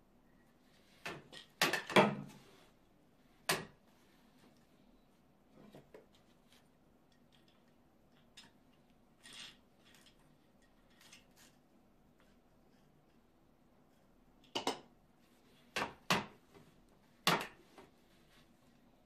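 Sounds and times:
soft taps and rustles of weft: 0:03.8 - 0:14.2.

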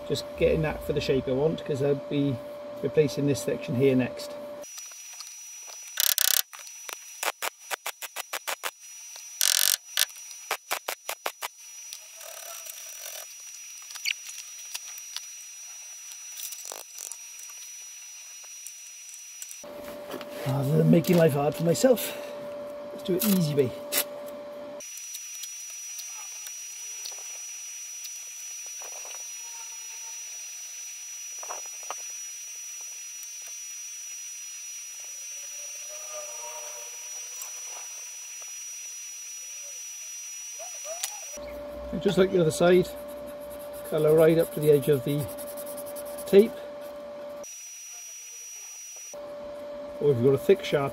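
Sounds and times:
steady high whine: 0:00.0 - 0:35.9, 0:36.9 - 0:50.9
welding arc bursts: 0:04.6 - 0:19.6
wire brush scratching metal: 0:41.9 - 0:46.6.

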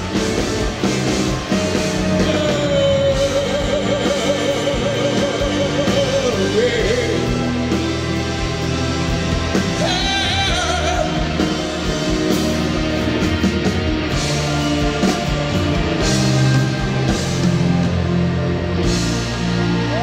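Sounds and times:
drums steady beat: 0:00.0 - 0:20.0
electric guitars: 0:00.0 - 0:20.0
person singing: 0:01.8 - 0:07.8, 0:09.6 - 0:11.8.

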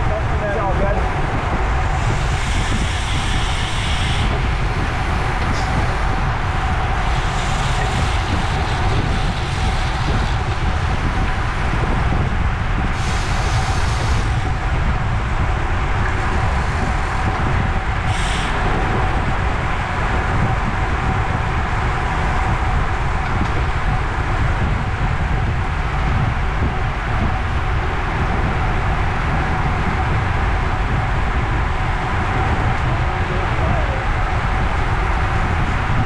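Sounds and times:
wind rushing over microphone: 0:00.0 - 0:36.0
hissy bursts: 0:01.9 - 0:06.1, 0:18.0 - 0:19.1.

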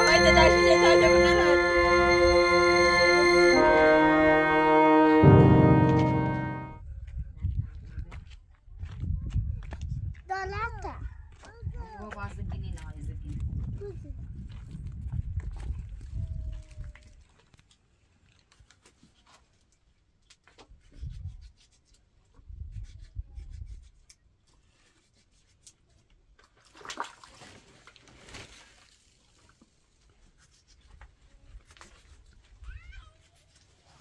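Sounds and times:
rustle: 0:27.3 - 0:34.0.

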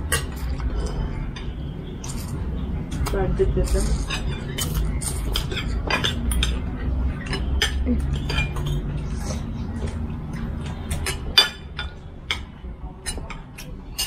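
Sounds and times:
cutlery clinking on plates: 0:03.0 - 0:14.0.

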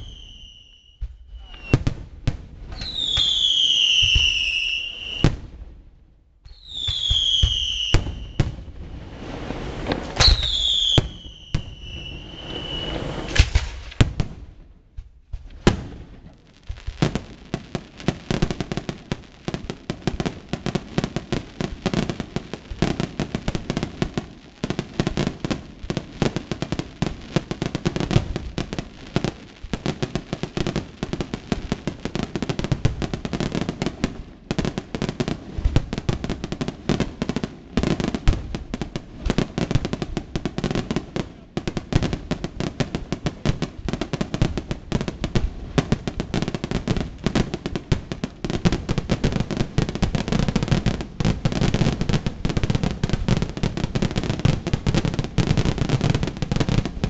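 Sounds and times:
firework whistles falling in pitch: 0:00.0 - 0:01.9, 0:02.7 - 0:05.4, 0:06.5 - 0:08.5, 0:09.9 - 0:13.8
firework bangs: 0:00.0 - 0:05.8, 0:06.4 - 0:57.0
firework crackles: 0:00.0 - 0:57.0.

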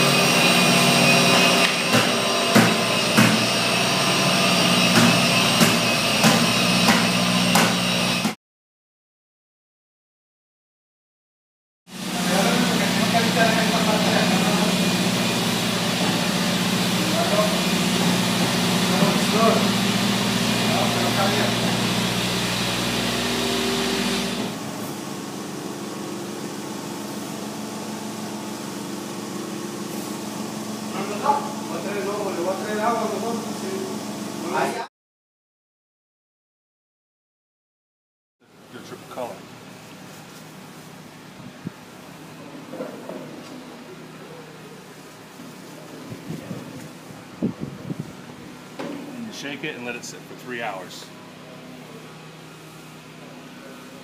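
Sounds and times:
dust extraction vacuum whining: 0:00.0 - 0:08.4, 0:11.9 - 0:34.8
machine motor humming: 0:00.0 - 0:08.4, 0:12.0 - 0:26.0.

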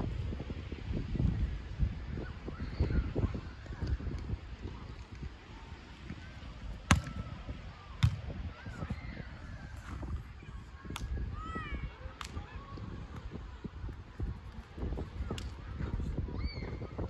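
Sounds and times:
ball hits: 0:06.8 - 0:07.3, 0:08.0 - 0:08.3.

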